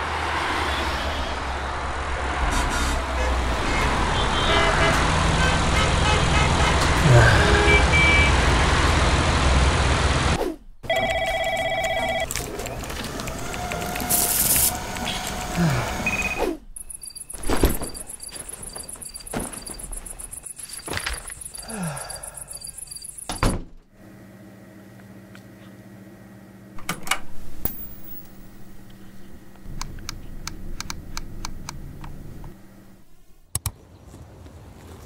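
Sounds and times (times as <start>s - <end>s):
crickets chirping: 16.8s - 23.4s.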